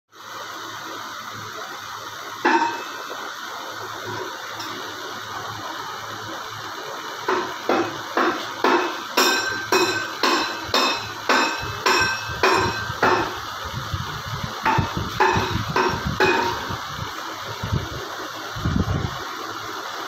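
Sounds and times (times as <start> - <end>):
hammering on metal: 2.5 - 3.0, 7.2 - 13.4, 14.6 - 16.8.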